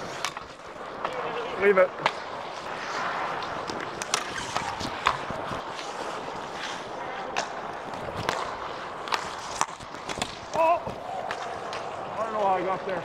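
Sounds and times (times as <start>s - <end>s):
skates hissing on ice: 0.0s - 12.8s
sticks and puck clacking: 0.0s - 13.0s.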